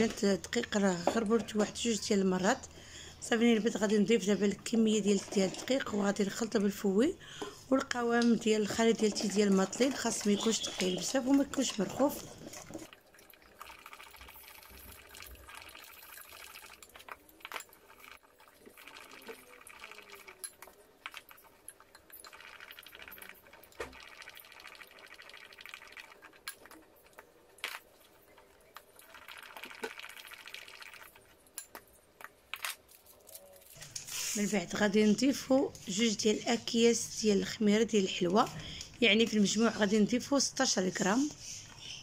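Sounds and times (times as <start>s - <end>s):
batter whisked in bowl: 7.6s - 32.4s.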